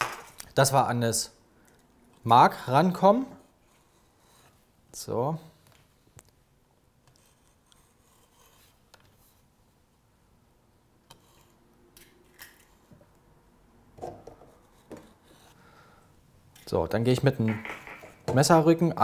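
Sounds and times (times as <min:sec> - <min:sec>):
knife scratching vanilla pods: 0:11.1 - 0:11.7.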